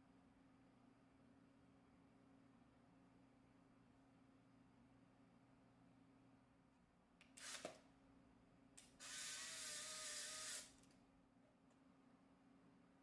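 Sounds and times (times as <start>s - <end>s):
camera motor whirring: 7.4s - 7.7s, 9.0s - 10.8s.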